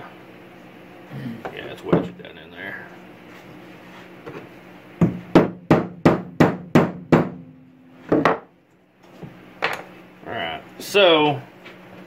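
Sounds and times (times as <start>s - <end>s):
hammer striking wood and metal: 5.0s - 8.5s.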